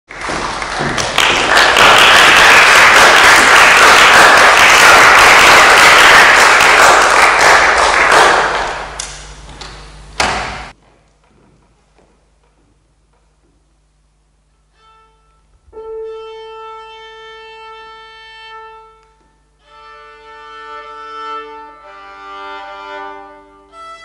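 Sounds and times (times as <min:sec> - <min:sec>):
audience applauding: 0:00.1 - 0:09.1.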